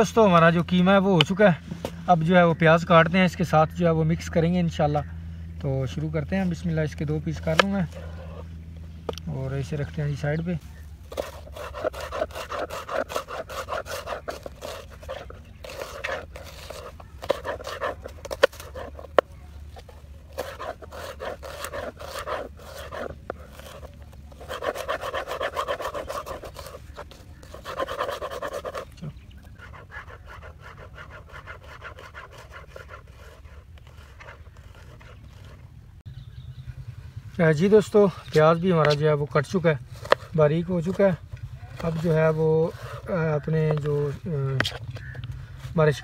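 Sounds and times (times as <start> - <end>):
knife chopping on plastic board: 15.7 - 19.3.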